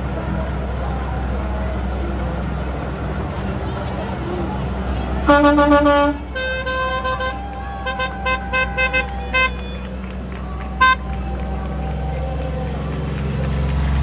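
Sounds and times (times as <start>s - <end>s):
low engine rumble: 0.0s - 14.0s
vehicle horns honking: 5.2s - 11.7s.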